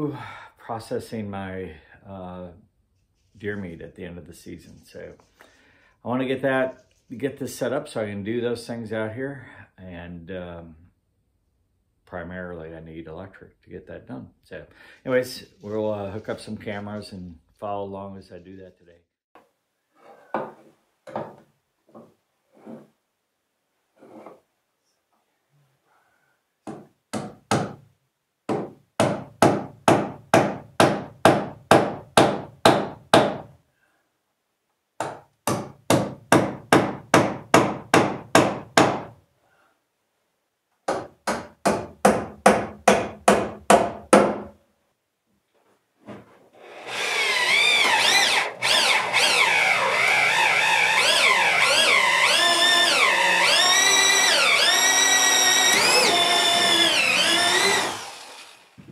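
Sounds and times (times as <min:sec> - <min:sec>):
power drill boring through wood: 0:46.6 - 0:58.8.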